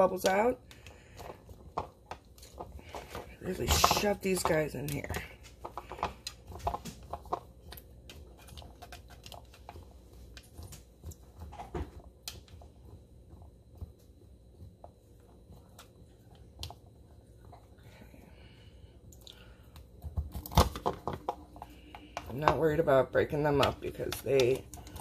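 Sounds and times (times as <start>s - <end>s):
beans crunching: 0.0s - 12.8s.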